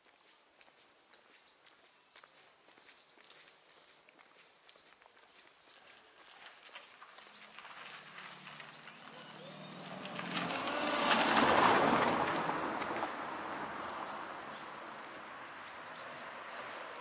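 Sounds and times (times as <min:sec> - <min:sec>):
car driving past: 0:07.3 - 0:17.0.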